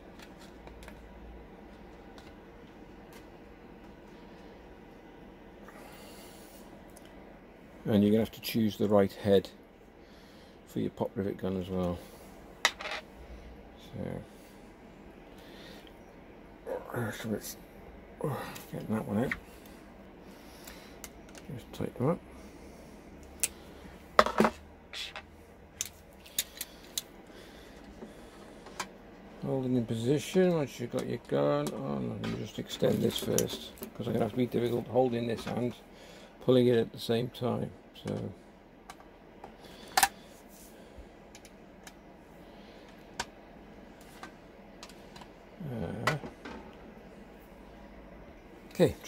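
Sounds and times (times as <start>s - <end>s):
man murmuring: 18.2s - 19.4s, 45.6s - 46.2s.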